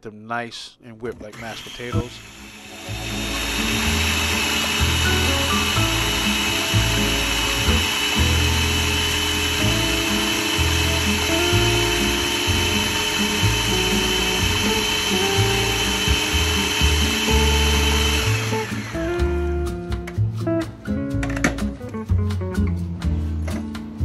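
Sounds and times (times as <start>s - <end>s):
food processor motor whine: 1.4s - 19.6s.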